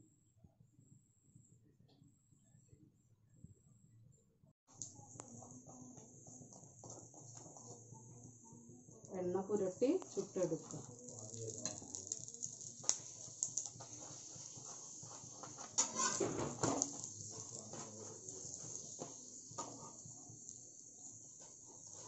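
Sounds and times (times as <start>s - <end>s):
flatbread sizzling on a pan: 9.4s - 22.0s
metal spatula scraping a pan: 13.5s - 20.1s.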